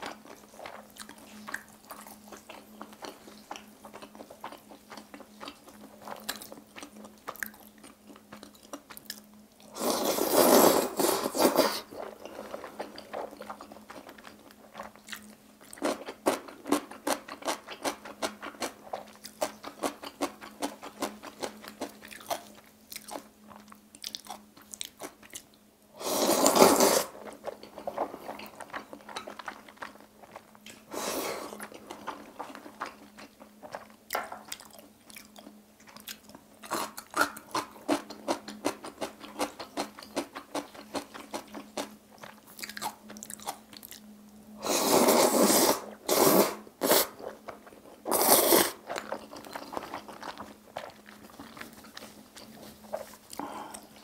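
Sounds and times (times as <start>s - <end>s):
chewing with wet mouth clicks: 0.0s - 9.4s, 12.0s - 25.6s, 31.6s - 44.1s, 48.8s - 54.0s
faint steady hum: 0.0s - 54.0s
noodle slurp: 9.7s - 14.1s, 26.0s - 33.8s, 44.6s - 47.4s, 48.0s - 53.2s.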